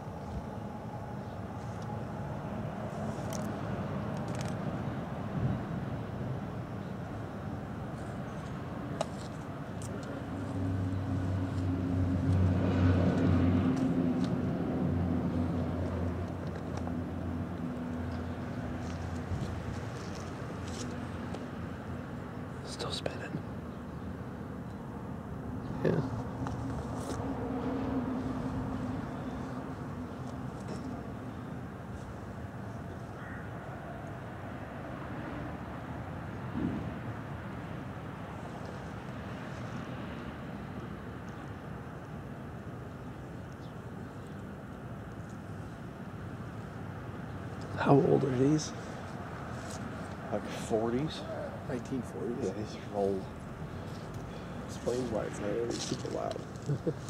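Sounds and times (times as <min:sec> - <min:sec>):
low thump: 0:36.6 - 0:36.9.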